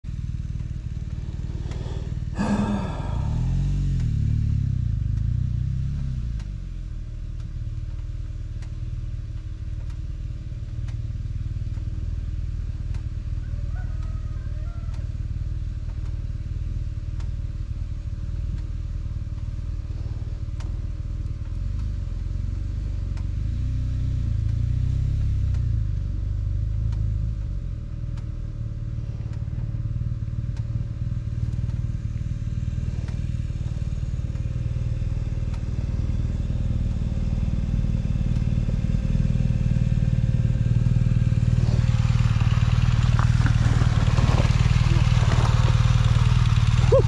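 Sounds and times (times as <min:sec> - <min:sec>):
motorcycle engine idling: 0:00.0 - 0:47.0
faint clicks: 0:07.2 - 0:17.6.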